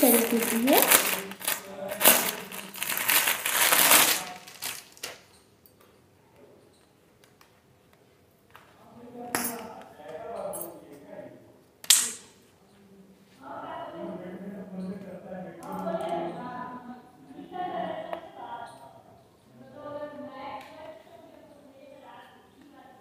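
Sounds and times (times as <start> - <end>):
plastic bag crinkling: 0.0 - 5.3.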